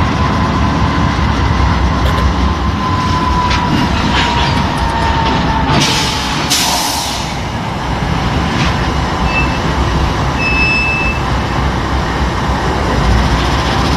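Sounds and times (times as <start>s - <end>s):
diesel locomotive rumble: 0.0s - 13.9s
short high-pitched beeps: 10.4s - 11.2s.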